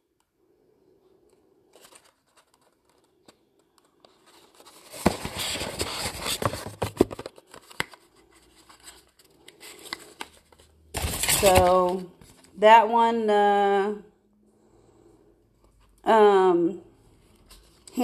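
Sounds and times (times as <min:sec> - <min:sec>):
cardboard box scraping and crinkling: 0:11.0 - 0:12.0.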